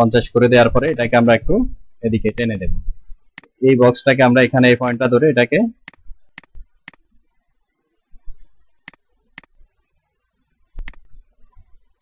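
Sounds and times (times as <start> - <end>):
mouse button clicking: 5.9 - 7.0, 10.8 - 11.1.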